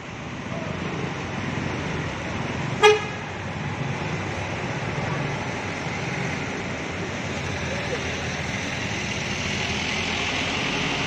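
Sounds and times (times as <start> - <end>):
bus rumbling away: 0.0 - 11.0.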